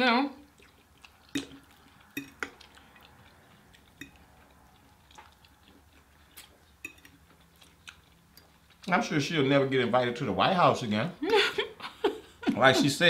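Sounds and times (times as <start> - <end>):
utensils clinking on food containers: 6.8 - 7.4.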